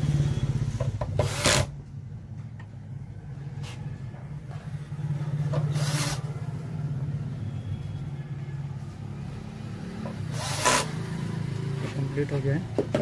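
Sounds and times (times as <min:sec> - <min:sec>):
cordless drill driving a screw: 0:01.2 - 0:01.7, 0:05.6 - 0:06.2, 0:10.3 - 0:11.0.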